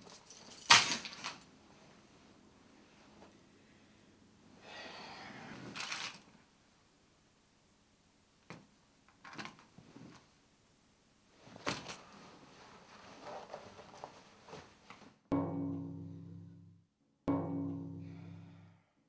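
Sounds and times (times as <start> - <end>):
keys clinking and knocking: 0.0 - 1.5
clothes rustling: 11.3 - 15.2.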